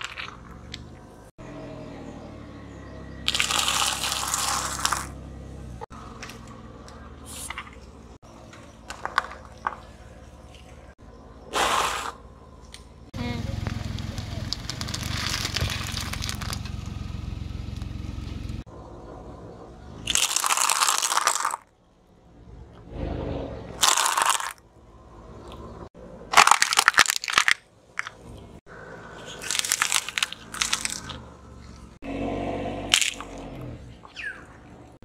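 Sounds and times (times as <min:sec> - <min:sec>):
objects crunching under car tyre: 0:00.0 - 0:01.3, 0:03.2 - 0:05.2, 0:05.8 - 0:11.0, 0:13.5 - 0:18.5, 0:20.0 - 0:21.7, 0:23.8 - 0:24.6, 0:26.3 - 0:28.5, 0:29.2 - 0:32.1, 0:32.7 - 0:34.4
low rumble: 0:21.9 - 0:23.8.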